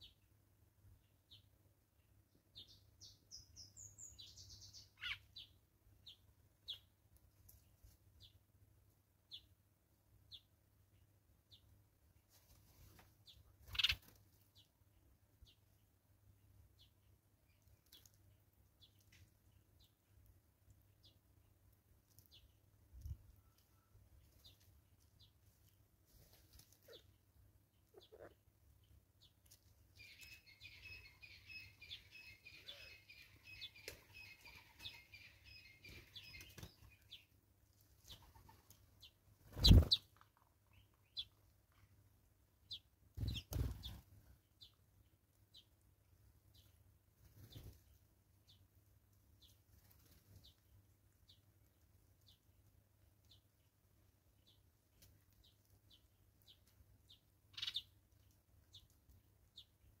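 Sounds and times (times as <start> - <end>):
bird rapid chattering song: 2.6 - 6.9, 13.3 - 14.1, 30.0 - 37.3, 38.0 - 41.8, 42.7 - 44.8, 55.4 - 58.0
thin high bird chirp: 2.6 - 6.9, 13.2 - 14.7, 27.8 - 37.3, 38.0 - 41.9, 42.7 - 44.0, 55.4 - 58.0
bird wing flaps: 39.5 - 40.0, 43.2 - 44.0.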